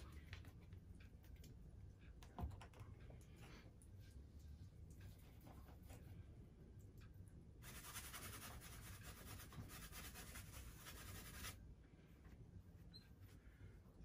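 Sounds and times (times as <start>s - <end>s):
paintbrush scratching on canvas: 7.6s - 11.6s.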